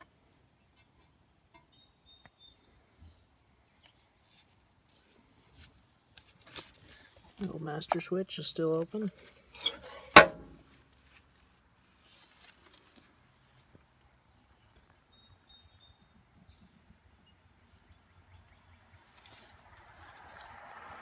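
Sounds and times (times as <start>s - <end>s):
faint rustling: 8.7s - 13.9s.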